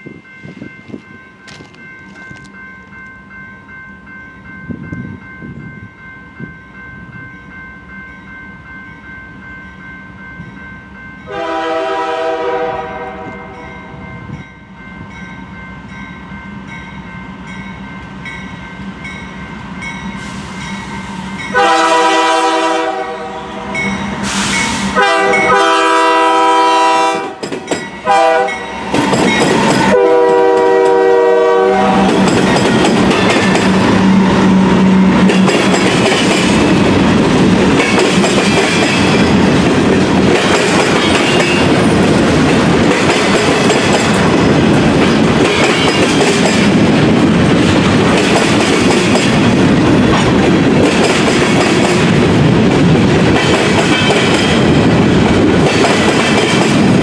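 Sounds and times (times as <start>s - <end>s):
train wheels rumbling: 10.4s - 57.0s
train air horn: 11.3s - 14.0s, 21.5s - 27.4s, 28.0s - 28.6s, 29.8s - 32.2s.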